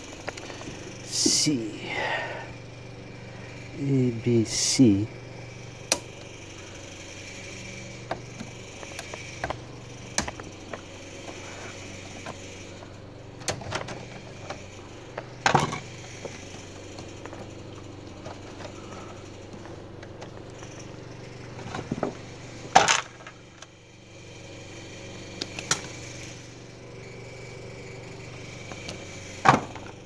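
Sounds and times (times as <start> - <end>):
steady low hum: 0.0 - 30.0
clicks and knocks of handling parts: 10.2 - 11.4, 22.8 - 23.7.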